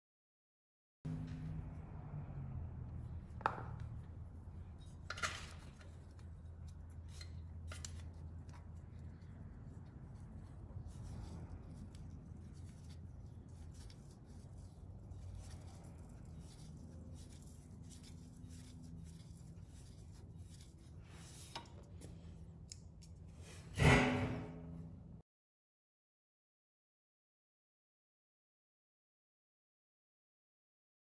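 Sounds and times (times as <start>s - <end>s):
metallic clicks and scraping: 3.3s - 9.4s
loud metallic clank: 23.7s - 24.8s.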